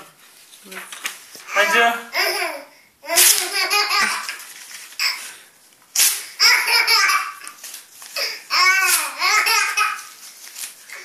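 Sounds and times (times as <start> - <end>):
paper rustling: 0.2 - 1.6, 3.2 - 11.0
baby laughing: 1.5 - 4.4, 6.4 - 7.6, 8.2 - 10.1.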